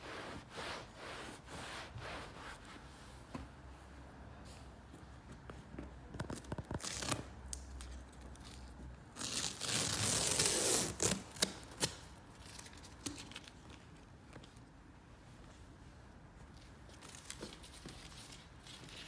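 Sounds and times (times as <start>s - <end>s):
tape ripping off leather: 6.2s - 7.3s, 9.2s - 12.1s.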